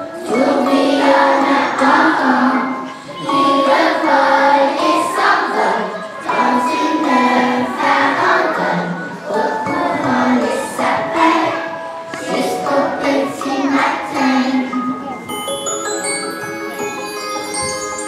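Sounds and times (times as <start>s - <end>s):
children's choir singing: 0.0s - 15.3s.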